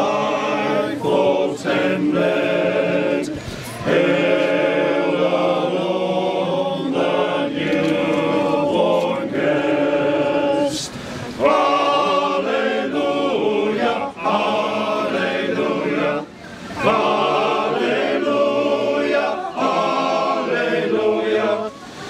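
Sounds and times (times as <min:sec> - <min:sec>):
group singing in harmony: 0:00.0 - 0:22.0
singers breathing: 0:03.3 - 0:03.8, 0:10.7 - 0:11.4, 0:16.3 - 0:16.8, 0:21.7 - 0:22.0.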